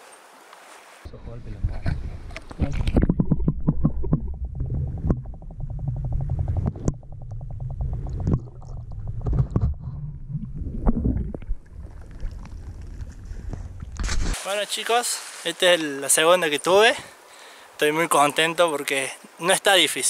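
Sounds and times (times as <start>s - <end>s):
underwater water rumbling: 1.4s - 14.4s
underwater knocks: 1.7s - 13.1s
rapid clicks underwater: 1.8s - 14.2s.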